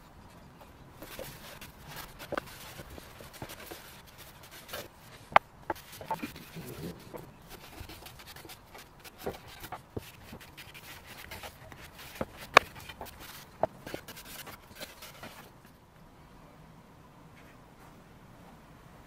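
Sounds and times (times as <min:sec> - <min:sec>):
small knocks and clicks: 0:00.2 - 0:15.7
cloth rag rubbing wood: 0:01.0 - 0:15.5.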